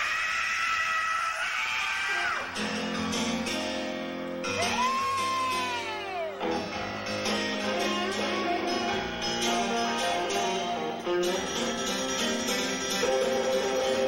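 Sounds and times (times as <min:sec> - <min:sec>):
rock band playing live: 0:02.4 - 0:14.0.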